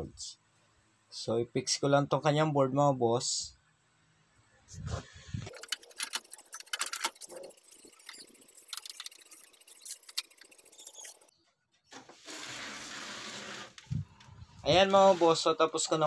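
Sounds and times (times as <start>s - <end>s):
circuit board clicks and clatter: 5.5s - 11.2s.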